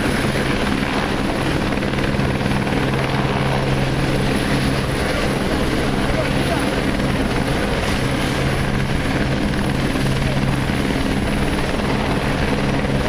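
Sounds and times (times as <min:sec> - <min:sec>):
helicopter engines and rotors: 0:00.0 - 0:13.0.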